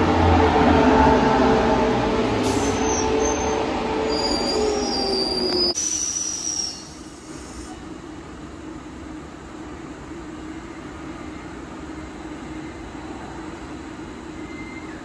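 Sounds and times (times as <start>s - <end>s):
electric train braking: 0.0s - 7.7s
wheels and brakes squealing: 2.6s - 7.3s, 14.4s - 15.0s.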